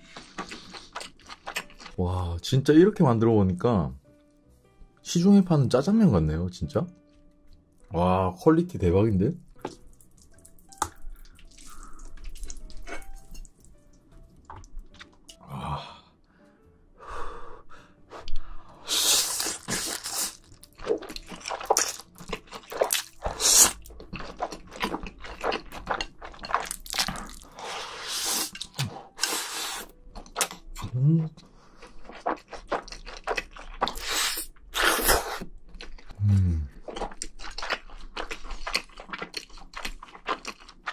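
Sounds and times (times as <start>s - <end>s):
chewing: 0.0s - 2.0s, 9.5s - 15.4s, 19.3s - 27.6s, 28.4s - 40.9s
loud noodle slurping: 23.3s - 23.8s, 29.2s - 29.9s, 33.9s - 35.5s.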